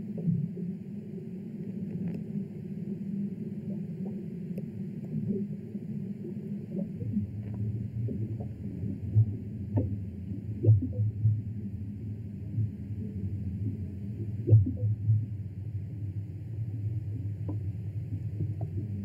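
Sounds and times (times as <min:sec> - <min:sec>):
low muffled rumble: 0:00.0 - 0:19.0
gliding pops and blips: 0:10.6 - 0:11.2, 0:14.4 - 0:15.0.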